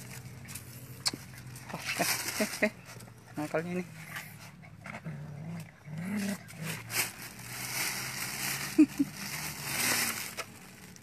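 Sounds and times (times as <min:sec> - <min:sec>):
plastic bags rustling: 0:00.0 - 0:03.6, 0:06.2 - 0:11.0
puppies growling: 0:00.6 - 0:10.3.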